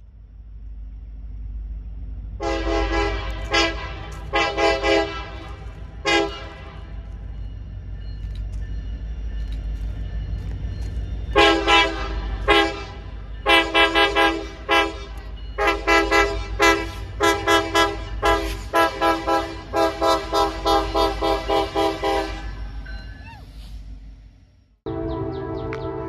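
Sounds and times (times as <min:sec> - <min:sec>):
freight train rumble: 0:00.0 - 0:26.0
locomotive air horn blasts: 0:02.4 - 0:07.0, 0:11.4 - 0:22.6.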